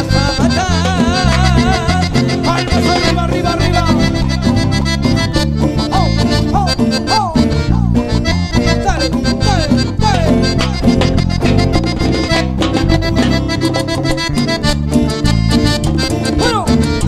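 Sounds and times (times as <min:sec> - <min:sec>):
cumbia band playing: 0:00.0 - 0:17.0.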